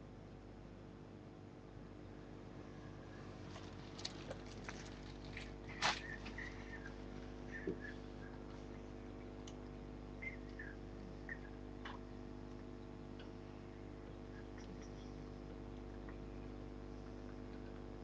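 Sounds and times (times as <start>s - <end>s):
steady electrical hum: 0.0s - 18.0s
faint high chirps: 10.1s - 11.6s.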